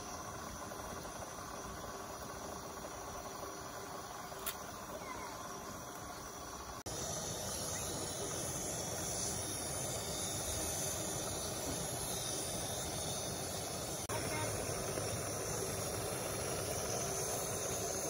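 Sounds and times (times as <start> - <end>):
insects chirping: 0.0 - 18.0
steady hiss: 0.0 - 18.0.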